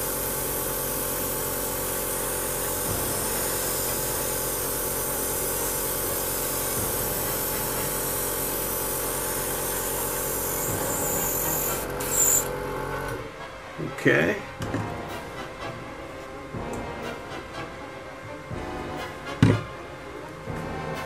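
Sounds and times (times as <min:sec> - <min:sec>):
airbrush hissing: 0:00.0 - 0:12.5
compressor humming: 0:00.0 - 0:21.0.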